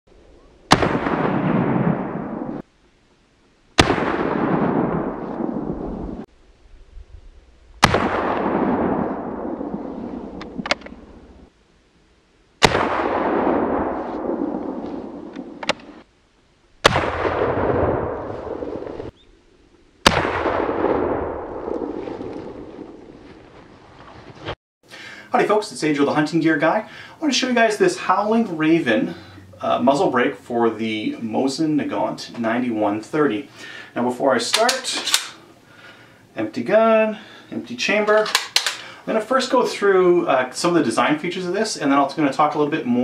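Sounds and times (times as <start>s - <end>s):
rifle shots with rolling echo: 0.7s - 2.7s, 3.8s - 6.3s, 7.8s - 11.5s, 12.6s - 16.0s, 16.8s - 19.1s, 20.0s - 23.3s, 38.1s - 38.9s
sharp rifle clicks: 10.4s - 11.0s, 34.5s - 35.4s, 38.1s - 38.9s.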